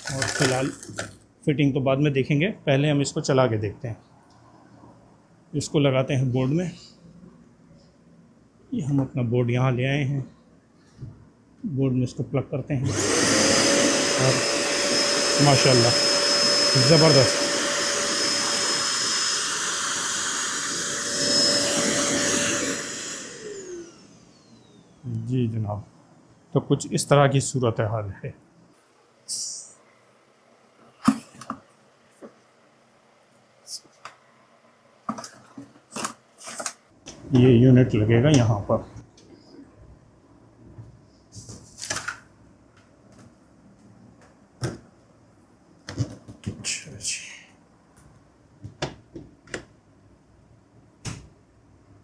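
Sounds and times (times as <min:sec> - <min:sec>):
vacuum cleaner whining: 0:00.0 - 0:01.2, 0:12.8 - 0:25.2.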